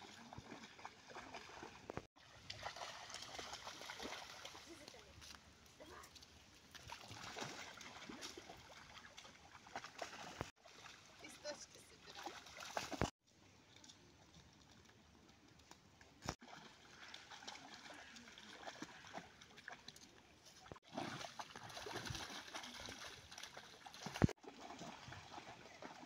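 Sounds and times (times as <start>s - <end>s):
dog splashing through water: 0.0s - 5.0s, 6.6s - 11.4s, 12.0s - 13.1s, 16.3s - 26.0s
stream trickling: 0.0s - 26.0s.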